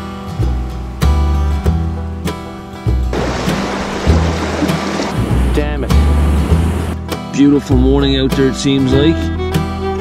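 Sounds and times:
acoustic guitar music: 0:00.0 - 0:10.0
steady rushing noise: 0:03.1 - 0:07.0
steady bass beat: 0:05.1 - 0:07.0.

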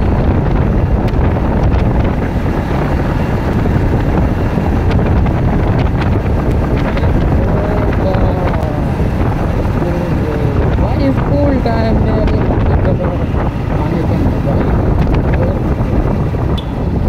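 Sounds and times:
motorcycle engine and road rumble: 0:00.0 - 0:17.0
wind buffeting microphone: 0:00.0 - 0:17.0.

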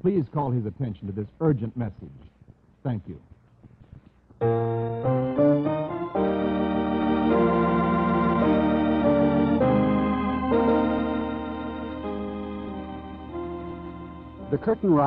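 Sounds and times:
organ playing chords: 0:04.4 - 0:15.0.

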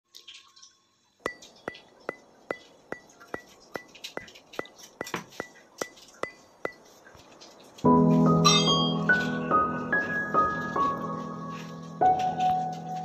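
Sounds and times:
clock-like ticking: 0:01.3 - 0:06.9.

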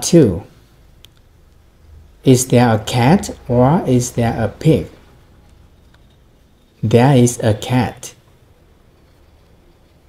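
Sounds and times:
faint background hiss: 0:00.0 - 0:10.0.

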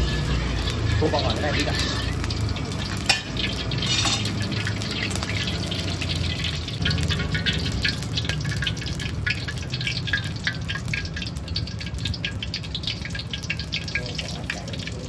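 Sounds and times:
hot oil crackling in wok: 0:00.0 - 0:15.0.

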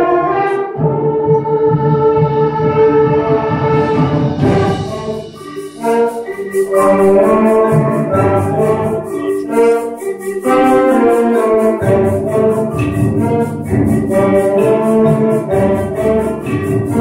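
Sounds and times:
concert band playing: 0:00.0 - 0:17.0
high percussion ticking: 0:04.3 - 0:17.0.

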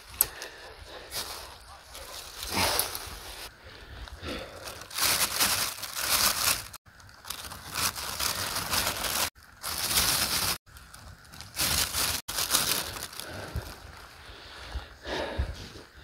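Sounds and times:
plastic bag crinkling: 0:04.5 - 0:14.2.

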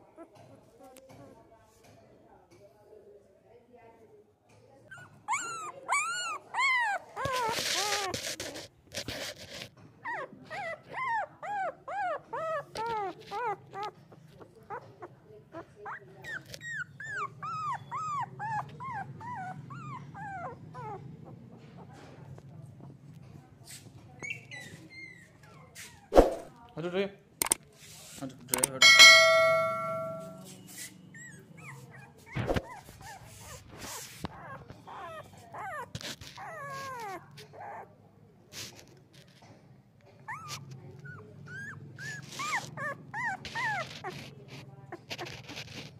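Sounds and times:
puppy whimpering cries: 0:04.9 - 0:08.6, 0:10.0 - 0:22.0, 0:24.2 - 0:26.1, 0:28.8 - 0:30.3, 0:31.1 - 0:38.0, 0:40.2 - 0:45.9.

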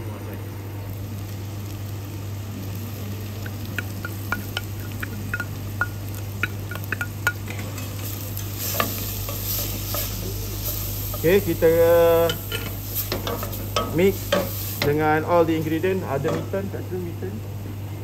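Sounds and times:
steady low hum: 0:00.0 - 0:18.0
carrot sizzling in hot pot: 0:00.4 - 0:17.8.

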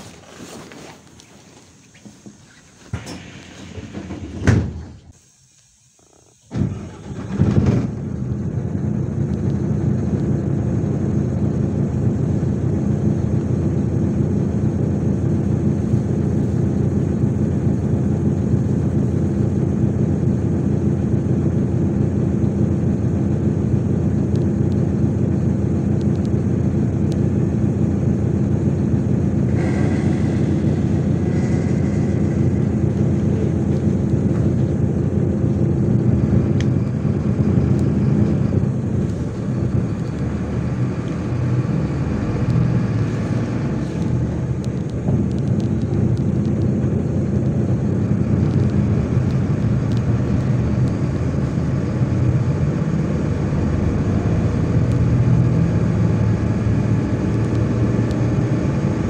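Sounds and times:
bus engine droning: 0:00.0 - 0:59.0
short high-pitched tone: 0:29.5 - 0:33.7.

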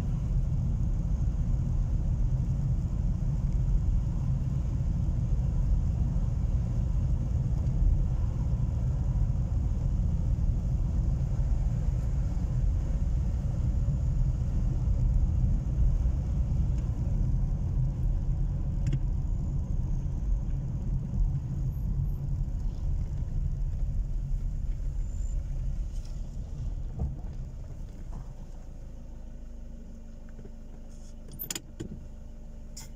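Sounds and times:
car engine and tyre rumble: 0:00.0 - 0:32.9.

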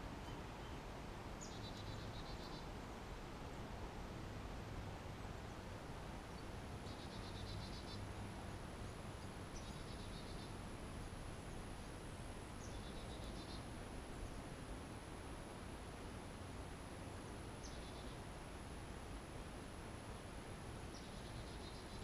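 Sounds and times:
faint outdoor hiss: 0:00.0 - 0:22.0.

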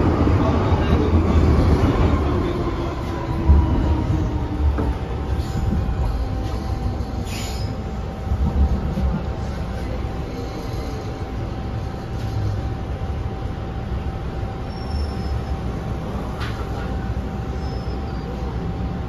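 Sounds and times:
train wheels rumbling on track: 0:00.0 - 0:19.0
faint high squeals: 0:14.7 - 0:15.6, 0:17.5 - 0:18.5.

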